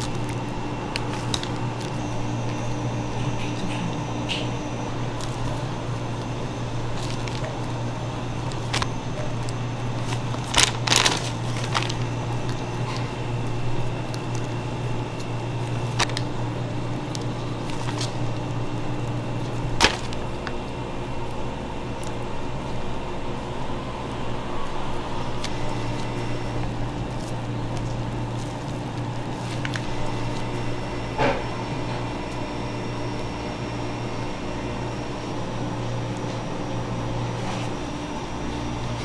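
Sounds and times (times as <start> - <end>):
kitchen machinery hum: 0.0 - 39.0.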